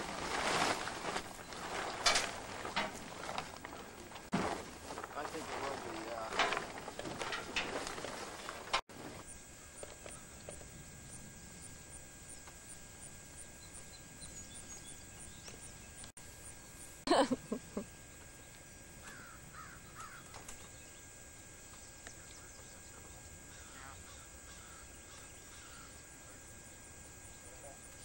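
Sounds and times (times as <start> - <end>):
bird cawing: 19.0 - 20.6, 23.5 - 26.0.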